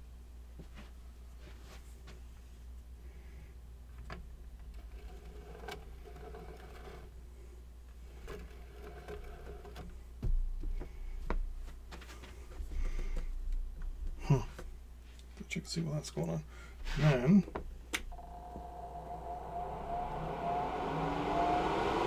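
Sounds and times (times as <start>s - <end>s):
sharp knocks and thumps: 10.2s - 11.4s
steady low hum: 16.4s - 22.0s.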